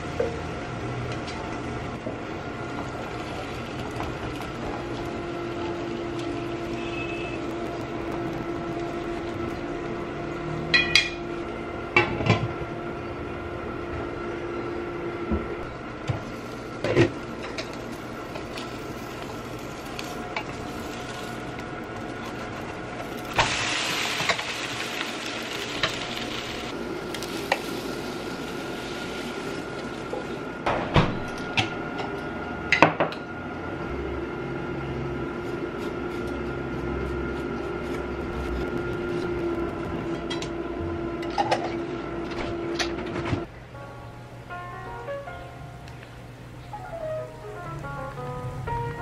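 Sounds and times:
frying sizzle: 0.0 - 12.2, 15.7 - 30.8
stove whine and hum: 0.0 - 49.0.

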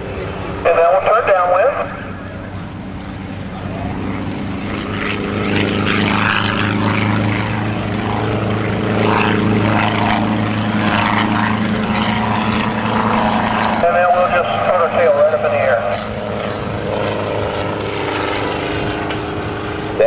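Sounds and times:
helicopter flying past: 0.0 - 20.0.

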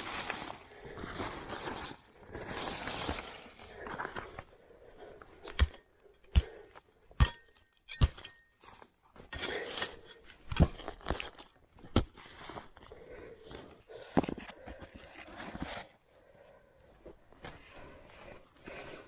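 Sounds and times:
shovel scraping through leaf litter: 2.4 - 3.5.

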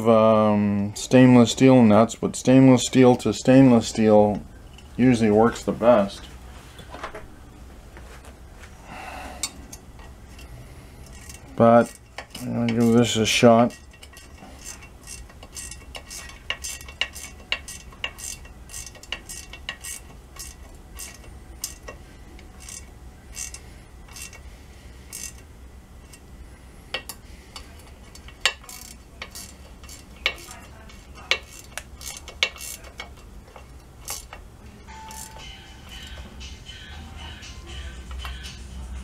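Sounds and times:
metal nuts clicking and clinking: 9.4 - 24.4, 25.1 - 26.2, 26.9 - 36.3.

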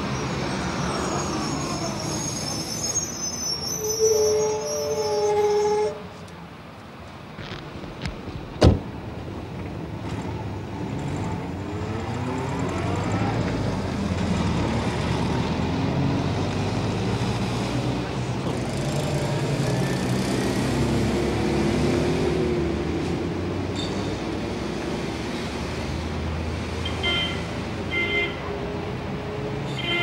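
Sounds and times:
car door slamming: 8.6 - 8.9.

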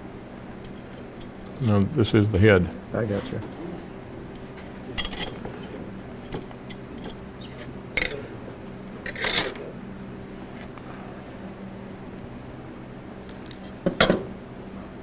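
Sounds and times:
metal parts clattering: 5.0 - 5.4, 9.0 - 9.6
metal parts clicking: 5.0 - 5.4, 6.3 - 8.2, 9.0 - 9.6.

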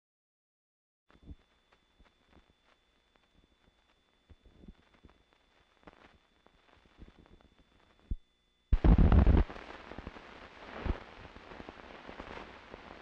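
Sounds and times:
crackles and clicks: 1.1 - 13.0
steady hiss: 8.8 - 13.0.

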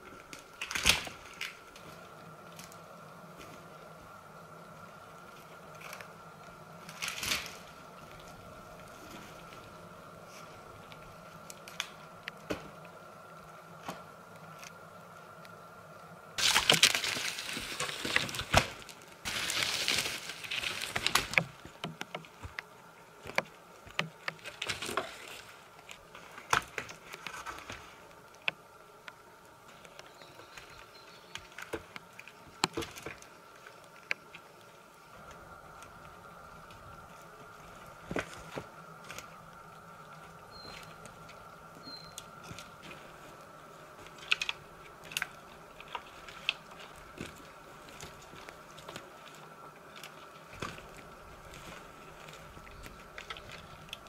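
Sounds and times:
faint high hum: 0.0 - 54.0
twigs snapping: 0.2 - 3.6, 5.2 - 9.7, 10.8 - 12.9, 16.4 - 54.0
wooden pole scraping through brush: 16.4 - 22.5.

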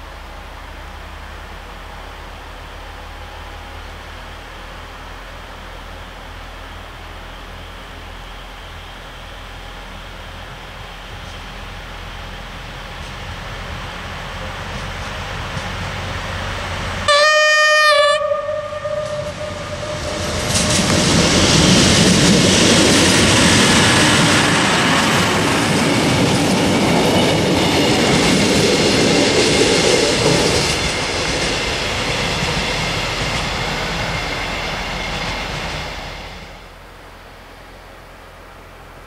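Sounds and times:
wheels clattering on rails: 9.6 - 17.1, 18.7 - 36.8
train horn blast: 17.0 - 21.4.

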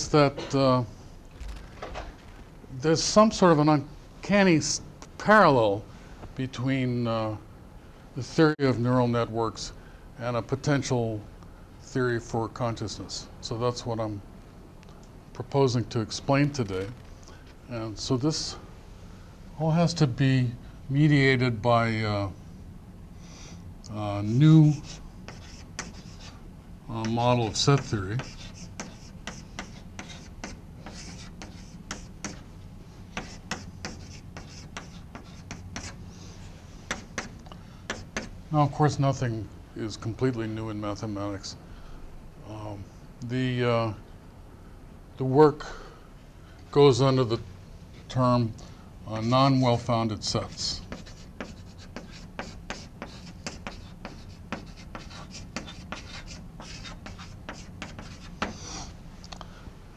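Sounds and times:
low room hum: 0.0 - 59.9
chalk tapping and scraping: 24.6 - 26.4, 27.0 - 32.5, 33.1 - 36.0, 36.8 - 38.4, 50.2 - 58.9.

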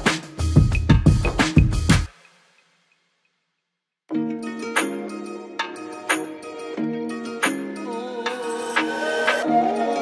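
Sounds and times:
music with punchy drum beat: 0.0 - 2.7.

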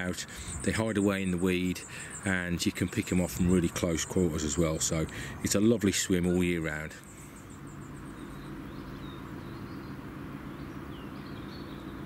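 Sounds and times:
steady low hum: 0.0 - 12.0
faint bird chirps: 0.1 - 3.3, 6.6 - 12.0.

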